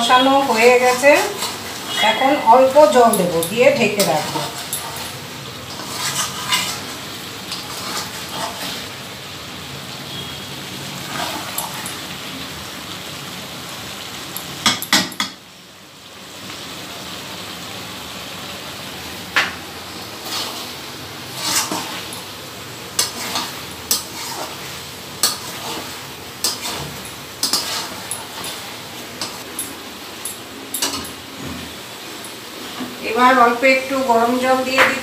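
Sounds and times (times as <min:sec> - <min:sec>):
pan sizzling: 0:00.0 - 0:35.0
metal spatula scraping pan: 0:00.4 - 0:08.9, 0:11.0 - 0:11.9, 0:20.2 - 0:22.2, 0:22.9 - 0:29.4.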